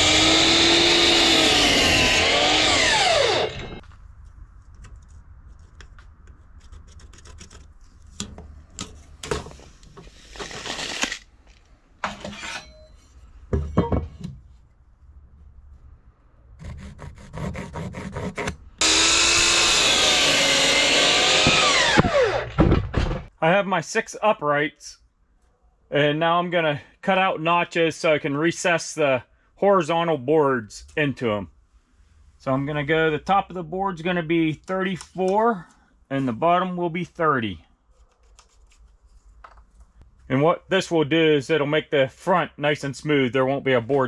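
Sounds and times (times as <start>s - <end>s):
miter saw cutting wood: 0.0s - 3.8s, 18.8s - 22.6s.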